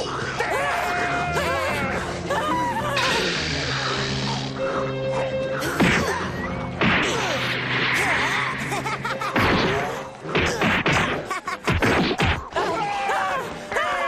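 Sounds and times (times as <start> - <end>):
background music: 0.0 - 14.0
cartoon whack and smash impacts: 9.4 - 12.4.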